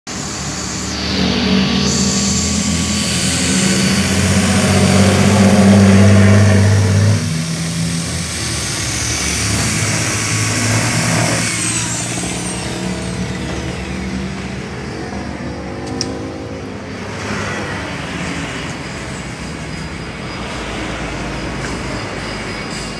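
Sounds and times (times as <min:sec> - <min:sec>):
electric drill motor hum: 0:00.2 - 0:14.6.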